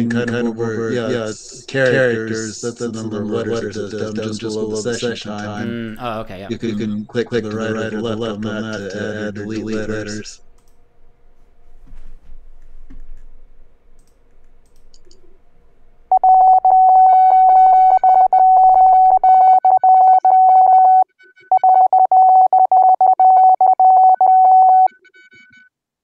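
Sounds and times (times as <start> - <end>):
morse code tone: 16.1 - 25.5.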